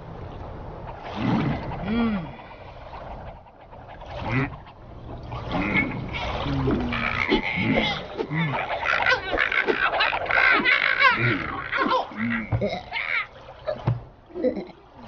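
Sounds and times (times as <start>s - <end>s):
cartoon voices babbling: 5.6s - 13.8s.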